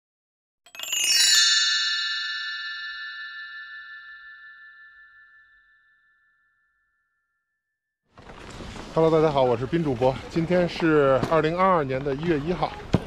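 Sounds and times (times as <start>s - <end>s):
shimmering bell chime: 0.7s - 7.4s.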